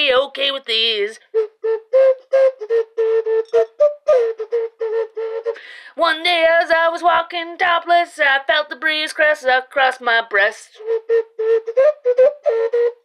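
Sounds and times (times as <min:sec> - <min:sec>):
woman singing with wavering pitch: 0:05.8 - 0:10.8
woman singing staccato notes: 0:06.0 - 0:10.8.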